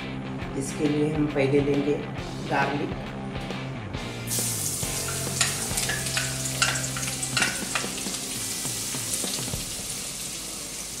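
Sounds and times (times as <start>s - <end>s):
garlic sizzling in hot oil: 4.3s - 11.0s.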